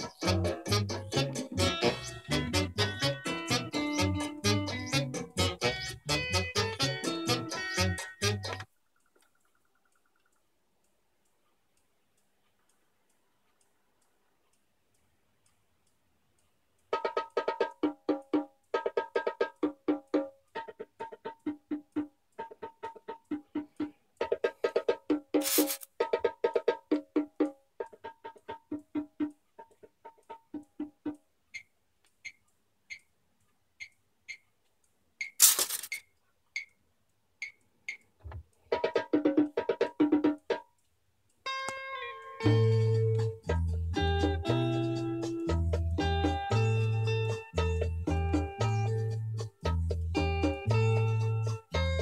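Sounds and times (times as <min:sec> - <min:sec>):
vinyl record ticks: 0:00.0 - 0:52.0
brief rustle: 0:25.4 - 0:25.9, 0:35.4 - 0:36.1.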